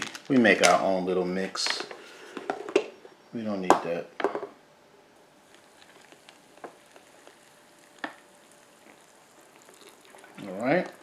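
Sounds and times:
water pouring into cup: 5.4 - 11.0.

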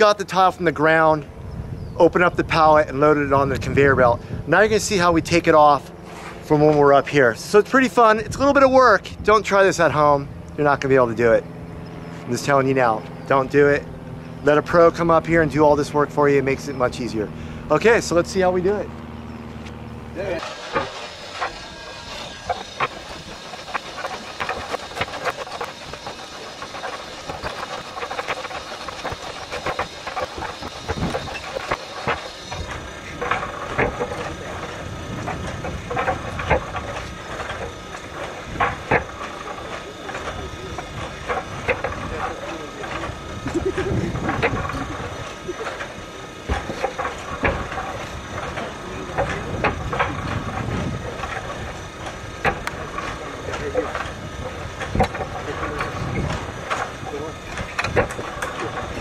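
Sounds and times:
conveyor low rumble: 0.0 - 59.0
roof tiles clacking together: 20.3 - 59.0.

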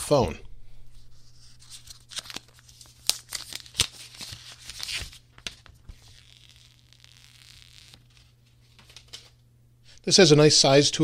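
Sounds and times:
plastic film peeling and crackling: 1.6 - 9.4.

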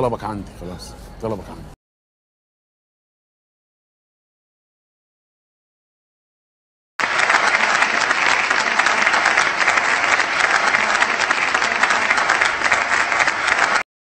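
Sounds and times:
crowd applause: 7.0 - 13.9.

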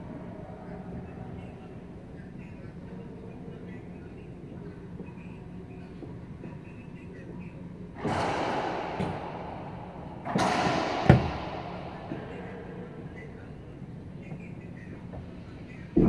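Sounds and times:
racquetball hits echoing: 8.0 - 13.5.

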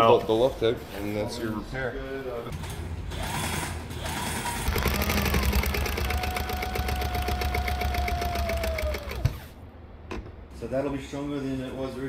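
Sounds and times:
sewing machine stitching: 3.2 - 9.5.

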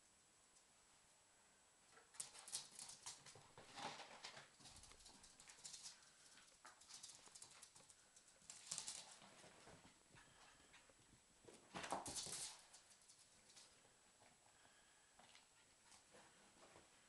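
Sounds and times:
dog claws clicking on floor: 2.1 - 9.3, 11.8 - 13.7.

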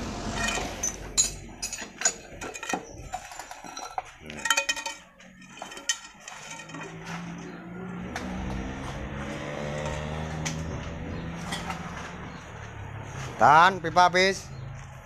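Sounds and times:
steel pipes clinking and clanking: 0.2 - 7.6, 8.2 - 12.5.

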